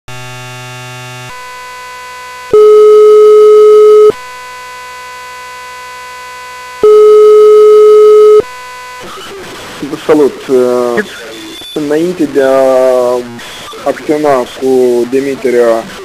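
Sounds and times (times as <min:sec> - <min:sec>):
faint steady line tone: 0:00.2 - 0:09.4
chord of tones: 0:00.3 - 0:09.4
telephone ringback beeps: 0:02.5 - 0:04.2, 0:06.8 - 0:08.5.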